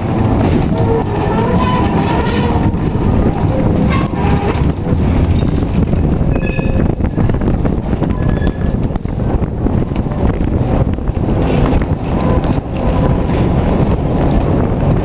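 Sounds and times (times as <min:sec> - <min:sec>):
tram wheels rumbling on rail: 0:00.0 - 0:15.0.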